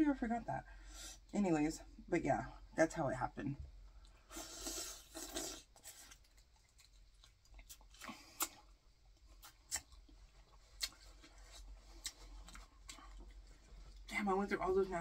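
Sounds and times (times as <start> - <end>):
quiet chewing: 3.7 - 14.2.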